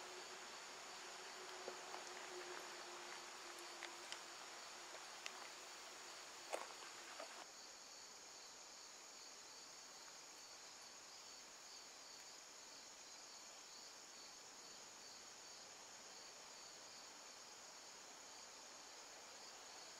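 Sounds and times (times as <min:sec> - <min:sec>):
insects trilling: 0:00.0 - 0:08.0.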